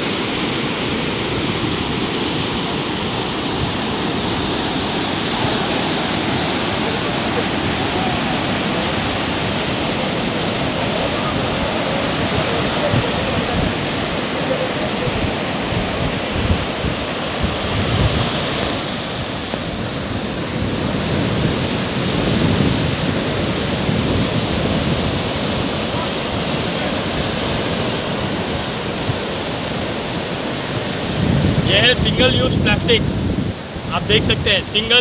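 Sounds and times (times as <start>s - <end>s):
waves breaking on shore: 0.0s - 35.0s.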